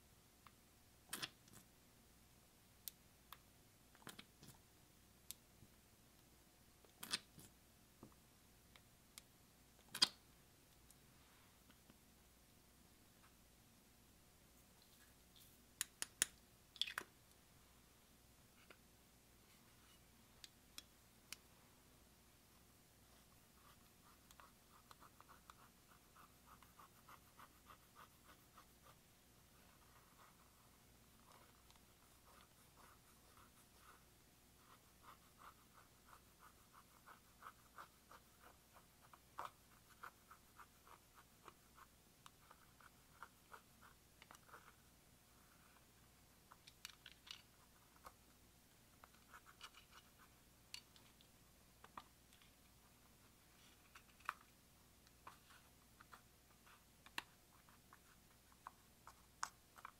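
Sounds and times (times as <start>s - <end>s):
plastic spatula scratching powder: 23.2s - 29.0s.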